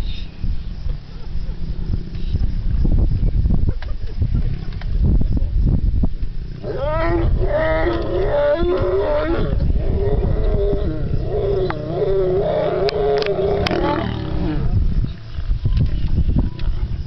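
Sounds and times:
lion growling: 0:06.5 - 0:15.0.

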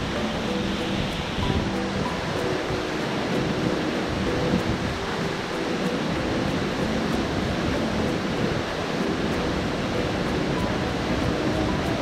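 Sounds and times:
water rushing: 0:00.0 - 0:12.0.

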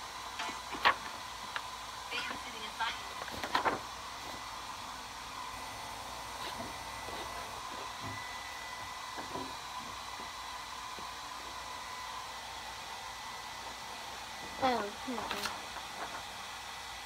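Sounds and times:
fan whirring hiss: 0:00.0 - 0:17.0
faint high whine: 0:04.2 - 0:13.6.

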